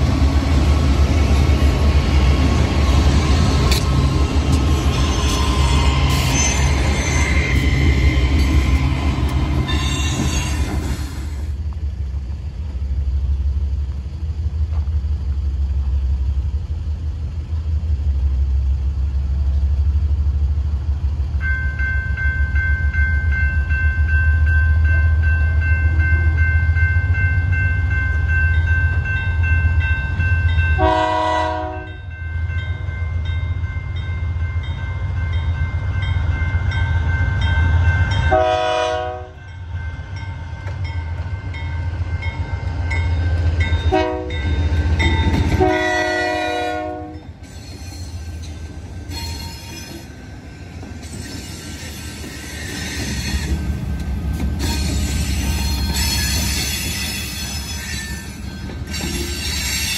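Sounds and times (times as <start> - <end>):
crossing bell dinging: 21.4 - 50.2
locomotive horn: 30.8 - 32.0, 38.3 - 39.4, 43.9 - 44.5, 45.5 - 47.2.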